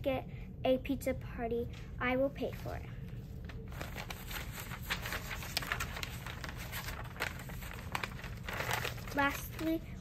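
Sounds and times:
low steady hum: 0.0 - 10.0
paper rustling and crackling: 3.4 - 9.9.

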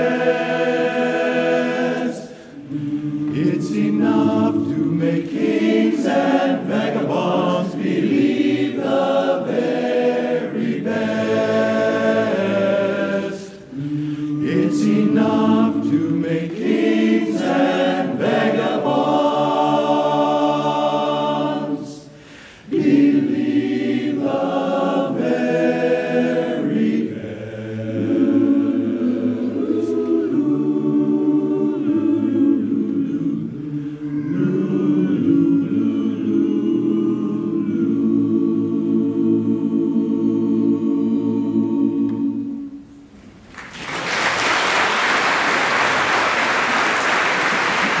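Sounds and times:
men's chorus singing a cappella: 0.0 - 42.8
audience applause: 43.5 - 48.0.

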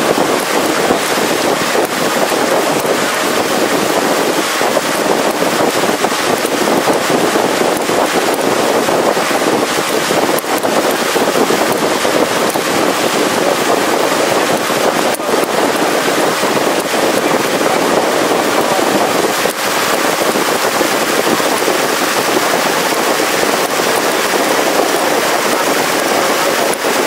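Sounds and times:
water noise from boat: 0.0 - 27.0
wind on microphone: 0.0 - 27.0.

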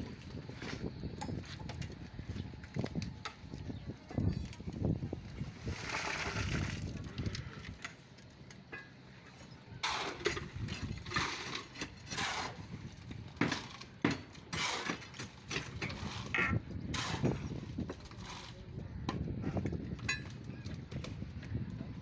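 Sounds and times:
wind rumble on microphone: 0.0 - 8.0, 9.7 - 13.7, 15.4 - 22.0
shovel scraping wet concrete: 5.6 - 6.9, 9.8 - 12.8, 13.4 - 18.6.

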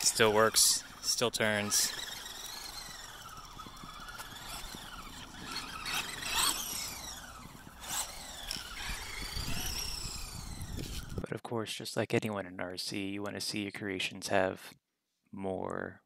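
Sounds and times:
electric motor and gearbox whining: 0.0 - 11.2.

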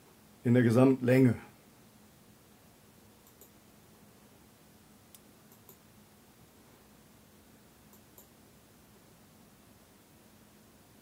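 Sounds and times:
faint steady hum: 0.0 - 11.0
computer mouse clicks: 3.2 - 3.6, 5.1 - 5.8, 7.9 - 8.4.

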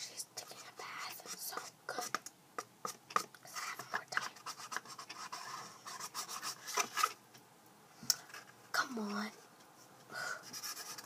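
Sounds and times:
cardboard tubes scratching and rustling: 2.9 - 7.2, 10.5 - 11.0.

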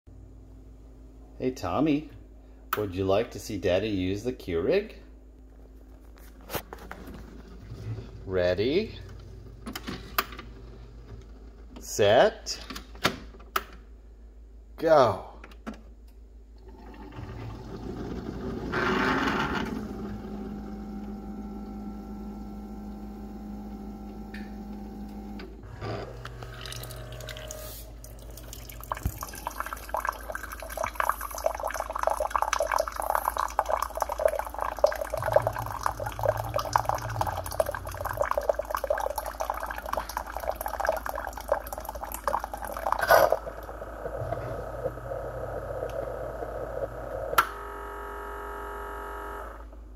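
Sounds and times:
coffee machine humming: 16.6 - 49.9
water spurting into glass cup: 25.7 - 46.1.

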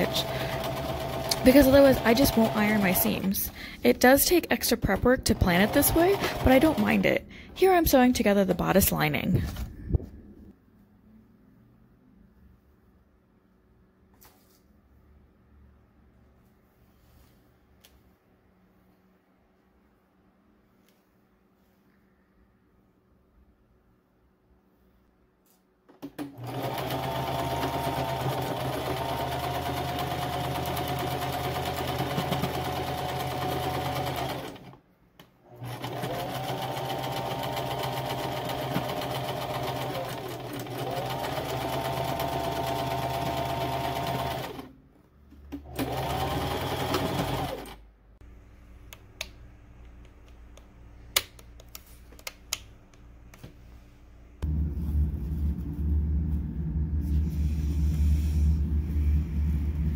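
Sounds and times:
sewing machine stitching: 0.0 - 3.6, 4.7 - 7.2, 26.0 - 34.8, 35.5 - 44.8, 45.5 - 47.8.

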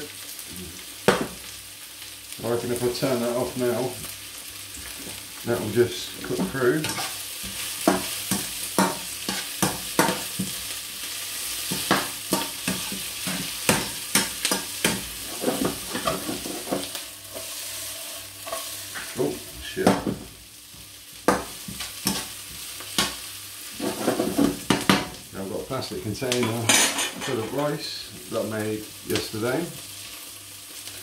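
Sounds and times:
onions sizzling in oil: 0.0 - 31.0
spatula scraping and tapping pan: 6.3 - 10.6, 11.7 - 19.2, 21.3 - 23.2.

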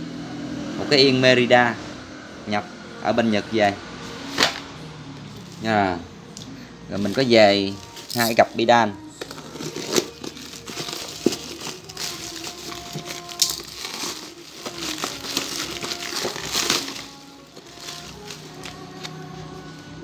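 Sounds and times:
quiet background music: 0.0 - 20.0
plastic wrap crinkling: 7.0 - 8.5, 9.2 - 19.7.

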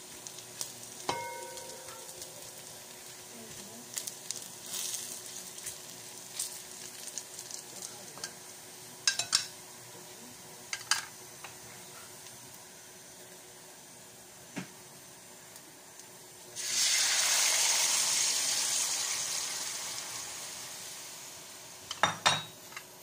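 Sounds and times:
garlic sizzling in oil: 0.0 - 23.0.

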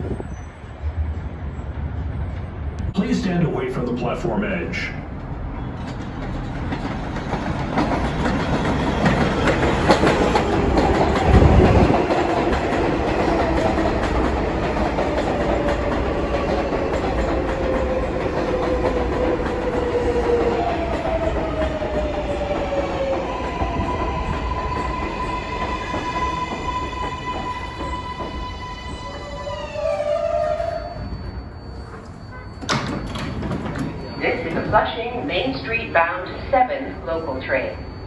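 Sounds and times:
train wheels clattering on rails: 5.2 - 29.5, 32.0 - 35.2
train braking whine: 15.2 - 38.0.

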